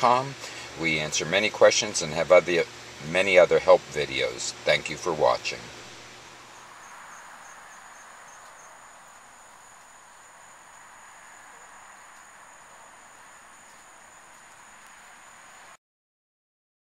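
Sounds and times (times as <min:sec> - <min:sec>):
faint hiss: 0:00.0 - 0:15.8
thin high-pitched whine: 0:00.8 - 0:15.8.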